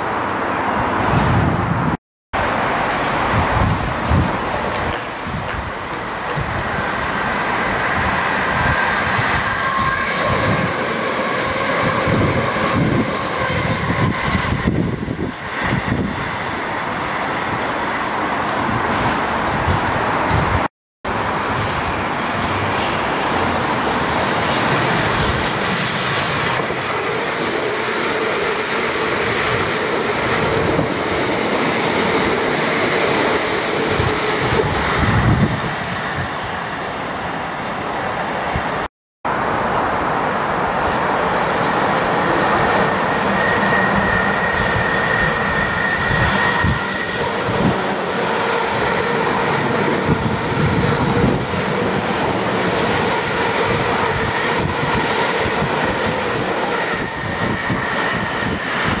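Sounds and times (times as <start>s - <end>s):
train passing close: 0.0s - 59.0s
train wheels rumbling on rail: 0.0s - 59.0s.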